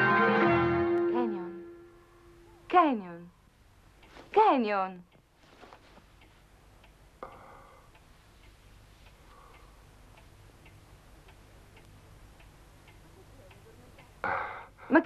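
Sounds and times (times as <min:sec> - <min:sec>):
clock ticking: 0:06.1 - 0:15.0.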